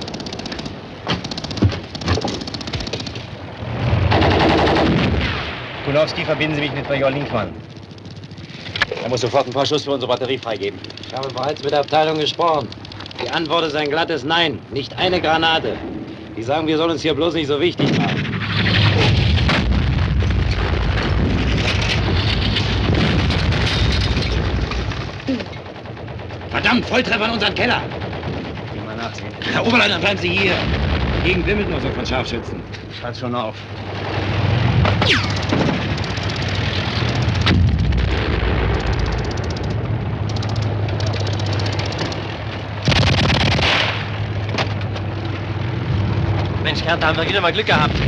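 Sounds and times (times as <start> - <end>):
machine-gun burst: 0.0 - 3.2, 4.0 - 5.4, 21.5 - 30.7, 35.0 - 42.2, 42.8 - 44.1
rapid gunfire: 0.0 - 3.3, 4.0 - 5.4, 22.4 - 30.9, 34.0 - 44.3
rumble of shellfire: 0.0 - 11.9, 17.8 - 32.8, 33.8 - 45.1, 47.5 - 48.0
single gunshots: 42.8 - 44.2.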